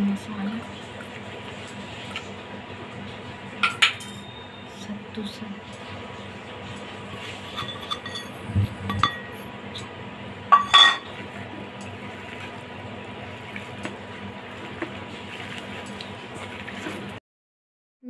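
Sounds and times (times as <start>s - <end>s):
steady low hum: 0.0s - 17.2s
metal spoon clinking against bowl: 7.5s - 8.3s.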